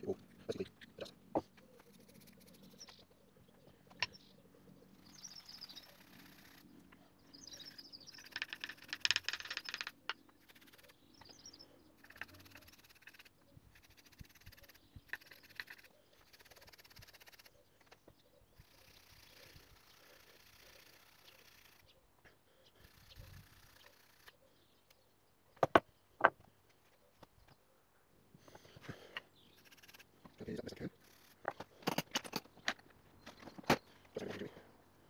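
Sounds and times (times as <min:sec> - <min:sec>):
birds chirping: 0:00.0 - 0:35.0
small metal clicks: 0:08.1 - 0:11.4.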